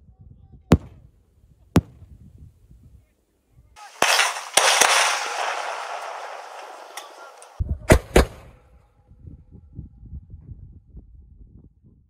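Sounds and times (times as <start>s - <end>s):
loud shots: 0.7s - 1.0s, 1.8s - 2.0s, 3.8s - 8.5s.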